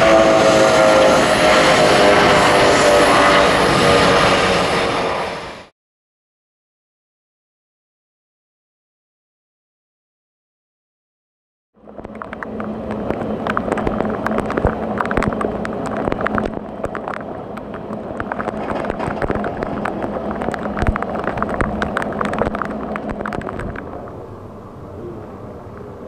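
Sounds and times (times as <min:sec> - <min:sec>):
steady machine hum: 0:11.8 - 0:26.0
heavy rain falling: 0:12.1 - 0:24.8.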